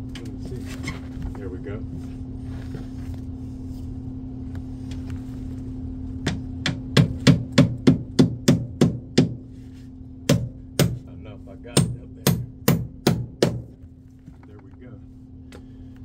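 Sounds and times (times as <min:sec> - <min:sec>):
steady low hum: 0:00.0 - 0:16.0
hammer nailing sheet metal: 0:11.8 - 0:13.7.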